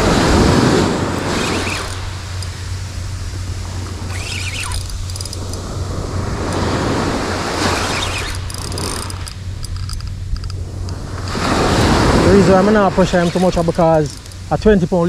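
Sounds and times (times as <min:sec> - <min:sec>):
surf breaking on beach: 0:00.0 - 0:04.4, 0:05.4 - 0:09.5, 0:10.6 - 0:15.0
wind on microphone: 0:00.0 - 0:15.0
brief squeaky sound: 0:04.1 - 0:04.9.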